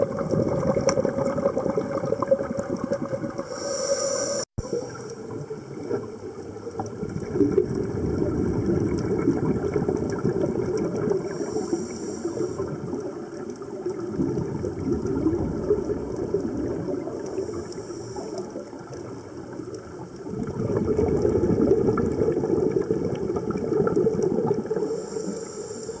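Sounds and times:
exhaust bubbles underwater: 0.0s - 3.8s, 4.6s - 26.0s
regulator inhalation hiss: 3.4s - 5.2s, 11.3s - 12.8s, 17.3s - 18.7s, 24.8s - 26.0s.

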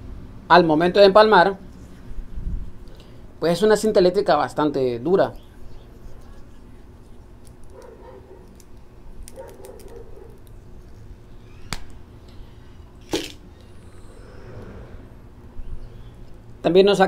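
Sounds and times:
tape rustling: 5.9s - 12.0s.

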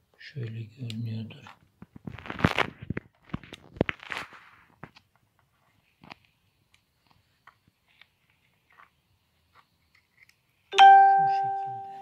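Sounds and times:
bell-like chime: 10.8s - 12.0s.

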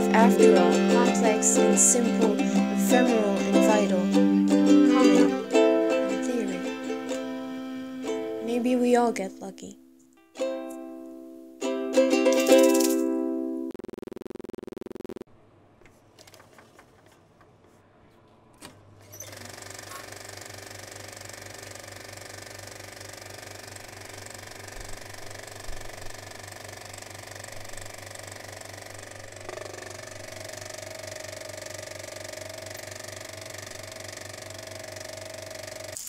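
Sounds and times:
steady whine: 0.0s - 8.5s, 13.7s - 15.3s, 23.8s - 36.0s
rapid mechanical rattle with hum: 19.1s - 36.0s.

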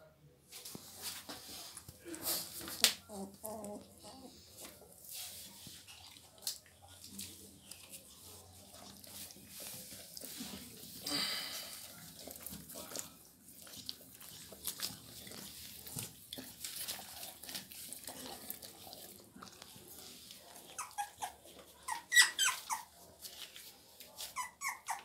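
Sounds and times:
rustling and scratching on blanket: 0.5s - 6.3s, 11.7s - 24.6s
puppies squeaking and whimpering: 3.1s - 4.5s, 20.6s - 23.0s, 24.2s - 25.0s.

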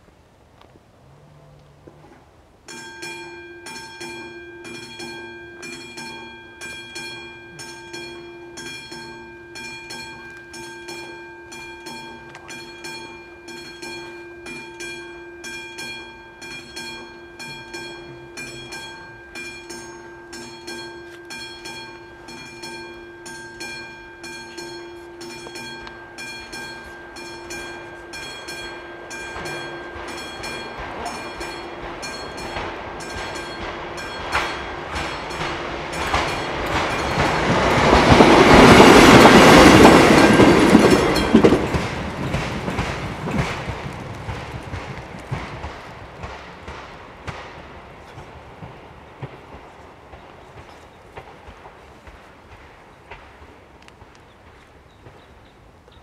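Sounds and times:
level crossing bell ringing: 2.7s - 41.9s.

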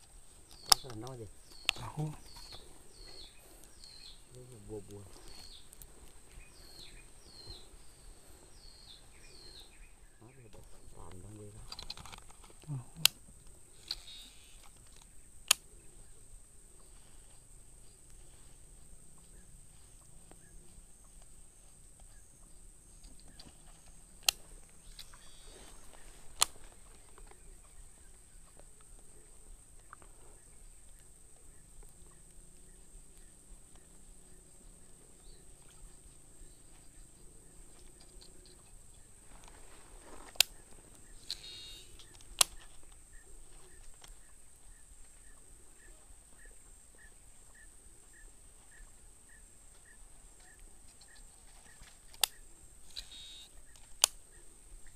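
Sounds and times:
faint chirp: 0.0s - 11.8s, 12.5s - 54.9s
faint high whine: 12.5s - 54.9s
fishing reel clicks: 52.1s - 54.2s.

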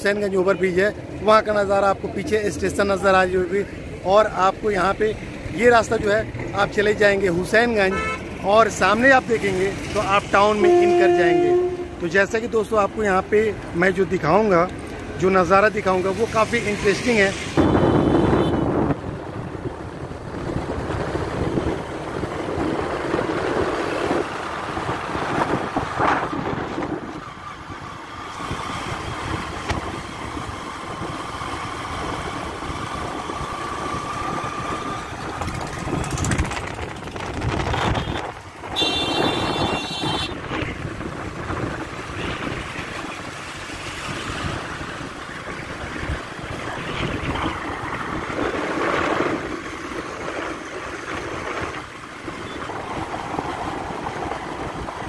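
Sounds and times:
road and wind noise: 0.0s - 55.0s
wind buffeting microphone: 17.6s - 55.0s.

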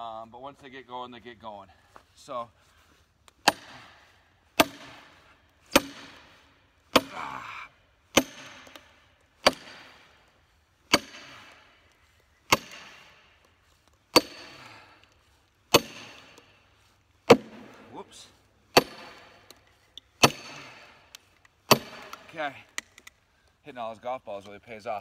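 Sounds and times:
sledgehammer striking steel wedge: 3.4s - 4.0s, 4.6s - 7.3s, 8.1s - 10.2s, 10.9s - 11.8s, 12.4s - 13.4s, 14.1s - 14.8s, 15.7s - 16.6s, 17.3s - 18.1s, 18.7s - 19.6s, 20.2s - 22.4s.

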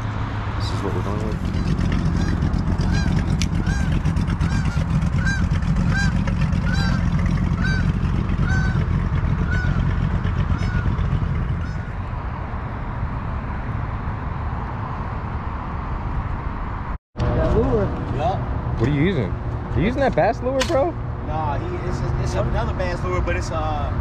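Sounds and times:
low rumble: 0.0s - 18.8s
geese honking: 1.4s - 12.0s.

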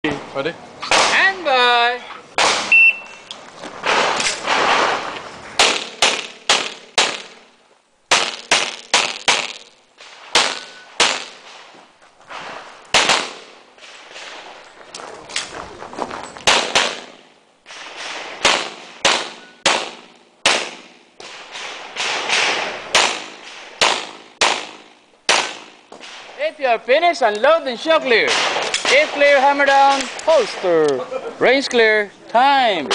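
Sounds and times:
shot timer beep: 2.7s - 3.2s
pistol shots echoing: 5.6s - 7.5s, 8.1s - 11.6s, 12.9s - 13.6s, 16.4s - 26.4s, 28.2s - 30.6s.

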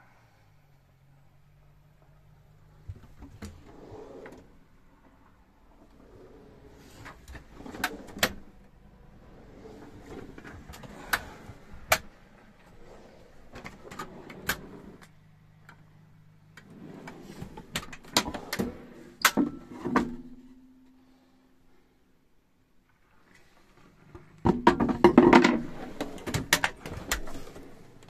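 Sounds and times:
drawers sliding on runners: 3.2s - 4.5s, 5.8s - 8.6s, 9.2s - 15.1s, 16.6s - 20.2s, 25.1s - 28.0s
drawers knocking against stops: 24.5s - 27.6s.

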